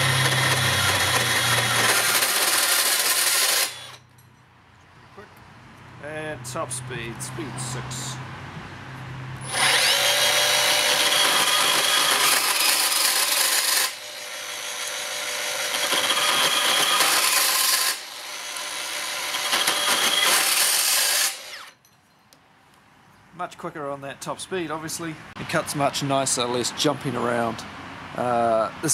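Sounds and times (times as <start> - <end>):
band saw cutting: 0.0 - 4.0, 9.4 - 21.8.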